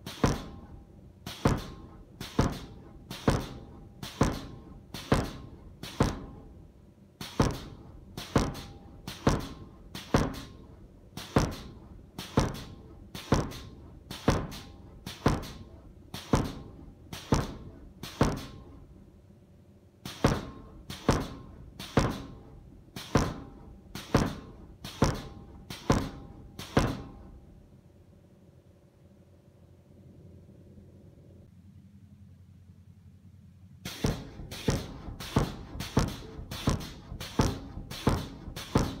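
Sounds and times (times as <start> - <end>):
power hammer blows on hot steel: 0.0 - 6.6, 7.2 - 18.9, 20.0 - 27.4, 33.8 - 39.0.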